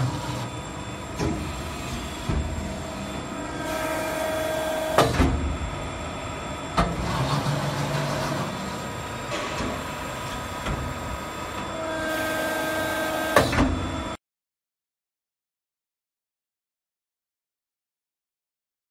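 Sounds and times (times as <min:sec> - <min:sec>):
press machine humming: 0:00.0 - 0:14.2
sharp mechanical clunks: 0:04.9 - 0:05.5.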